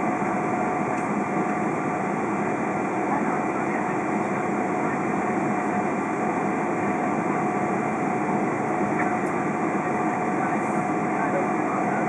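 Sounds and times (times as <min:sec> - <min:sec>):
jet engines running at low power: 0:00.0 - 0:12.0.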